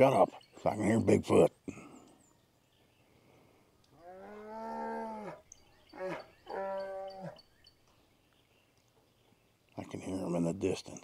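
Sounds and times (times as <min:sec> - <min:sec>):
cow mooing: 0:04.0 - 0:07.4.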